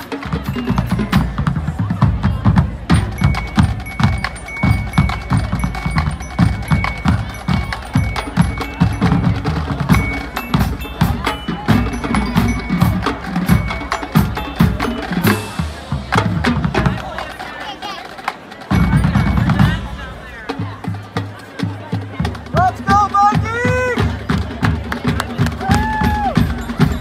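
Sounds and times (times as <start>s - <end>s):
marching band playing: 0.0s - 27.0s.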